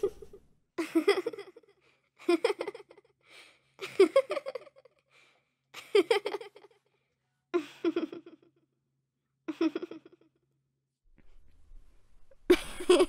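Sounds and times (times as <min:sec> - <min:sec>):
girl giggling: 0:00.0 - 0:03.0, 0:03.8 - 0:05.0, 0:05.8 - 0:06.8, 0:07.6 - 0:08.5, 0:09.5 - 0:10.2, 0:12.5 - 0:13.0
faint breaths: 0:03.2 - 0:03.8, 0:05.1 - 0:05.6.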